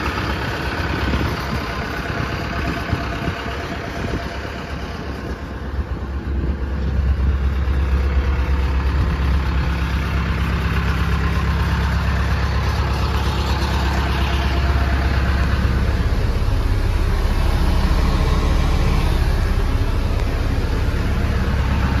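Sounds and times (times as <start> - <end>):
truck engine idling: 0.0 - 22.0.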